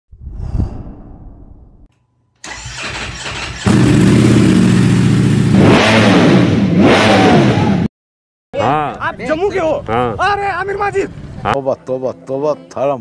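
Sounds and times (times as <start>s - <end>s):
engine revving hard: 2.5s - 7.9s.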